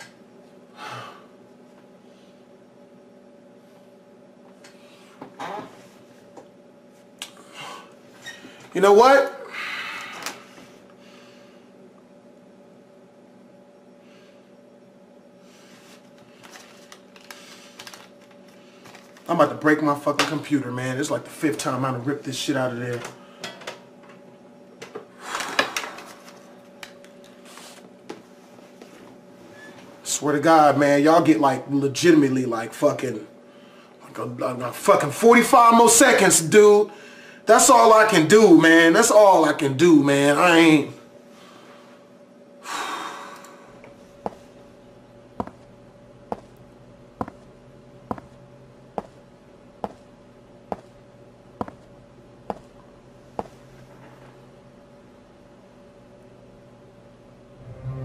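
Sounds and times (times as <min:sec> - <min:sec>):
faint steady hum: 0:00.0 - 0:58.0
heavy breathy exhale: 0:42.6 - 0:43.7.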